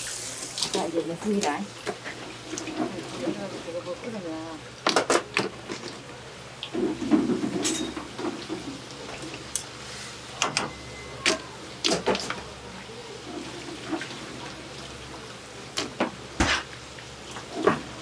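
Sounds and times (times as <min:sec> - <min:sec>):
kitchen clicks and knocks: 0:06.8 - 0:08.7.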